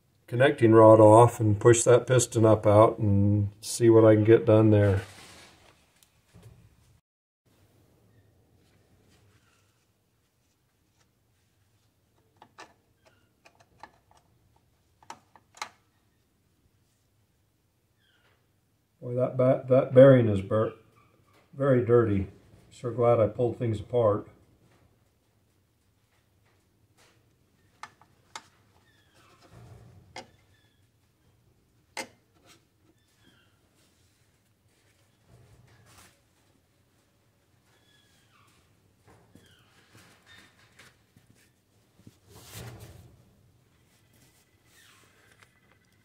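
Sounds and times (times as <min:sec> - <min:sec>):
scraping rustle: 0:04.8 - 0:06.6, 0:39.4 - 0:45.4.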